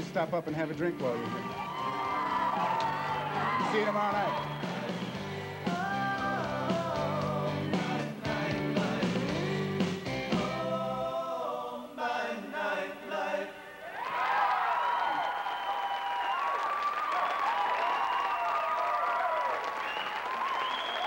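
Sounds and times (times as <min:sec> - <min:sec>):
band playing: 0:00.0 - 0:10.8
bass: 0:00.0 - 0:11.9.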